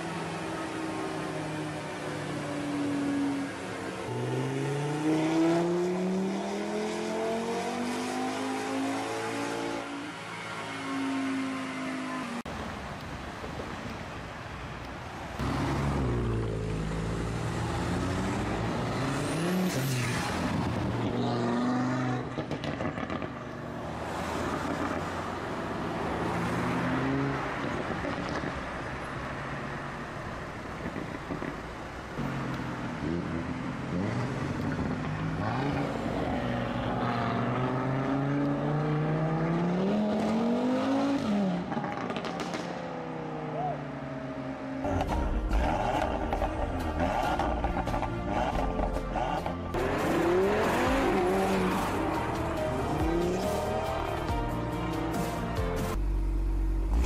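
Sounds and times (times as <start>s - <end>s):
car engine accelerating hard: 44.8s - 54.2s.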